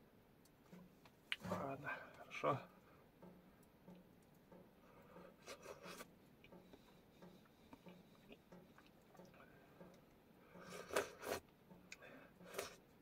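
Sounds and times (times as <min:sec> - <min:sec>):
faint chewing: 0:03.6 - 0:13.0.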